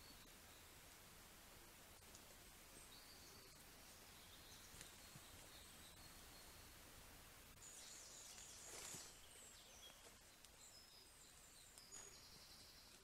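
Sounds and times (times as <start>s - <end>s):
rustle of undergrowth: 1.8s - 6.7s, 7.5s - 13.0s
birds chirping and whistling: 7.6s - 13.0s.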